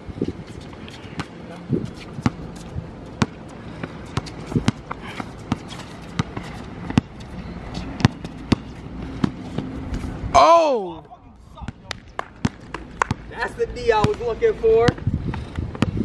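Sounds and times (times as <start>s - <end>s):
basketball bouncing on court: 2.2s - 7.2s, 8.0s - 9.4s, 11.6s - 13.3s, 13.9s - 15.0s, 15.7s - 16.0s.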